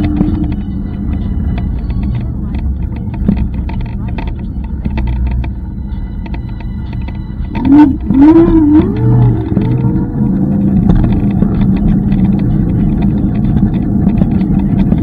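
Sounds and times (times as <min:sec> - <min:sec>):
wavering tone: 0:00.0 - 0:02.3, 0:06.2 - 0:13.5
scooter road rumble and rattling: 0:00.0 - 0:15.0.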